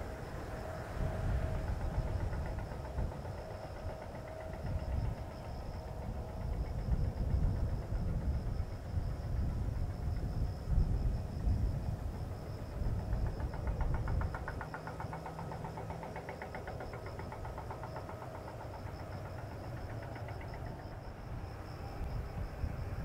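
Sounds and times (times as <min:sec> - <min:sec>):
distant jet engines idling: 0:00.0 - 0:23.0
insect trill: 0:00.0 - 0:23.0.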